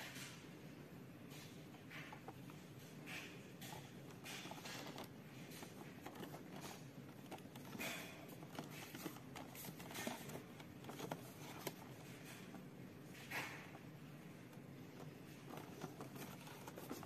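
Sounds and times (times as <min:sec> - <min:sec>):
cardboard box rustling: 0:03.8 - 0:12.6, 0:14.5 - 0:17.0.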